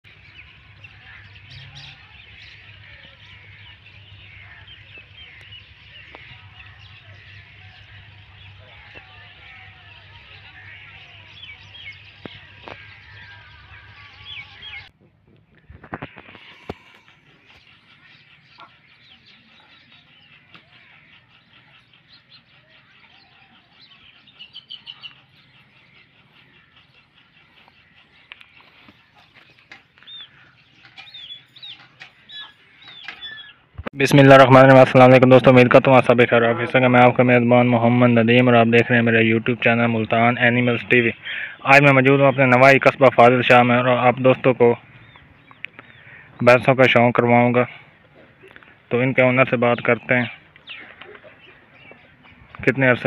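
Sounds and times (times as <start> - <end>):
small birds chirping: 0.0 - 53.0
steady low hum: 0.1 - 33.8.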